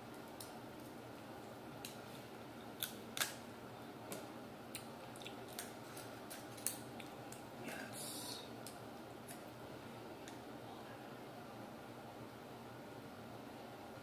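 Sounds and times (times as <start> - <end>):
crab shell cracking: 2.7 - 3.4.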